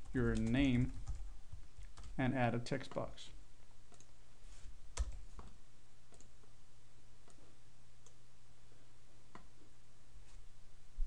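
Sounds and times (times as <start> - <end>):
low electrical hum: 0.0 - 11.0
computer mouse clicks: 3.9 - 4.2, 5.0 - 6.3.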